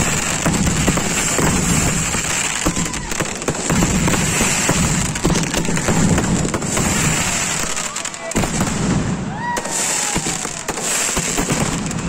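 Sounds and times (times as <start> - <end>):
firecrackers popping: 0.0 - 12.0.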